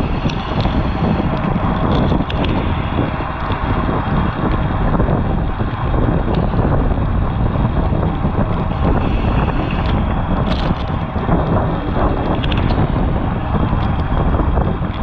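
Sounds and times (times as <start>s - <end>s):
wind rushing over microphone: 0.0s - 15.0s.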